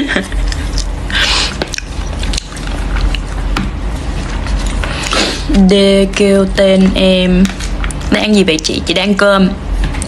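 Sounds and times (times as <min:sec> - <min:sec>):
person chewing rice: 0:00.3 - 0:05.5.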